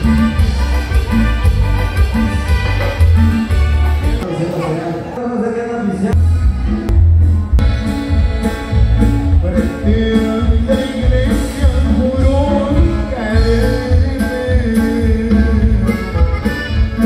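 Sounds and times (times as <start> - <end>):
live band music with singing: 0.0 - 17.0
strong bass beat: 6.1 - 17.0.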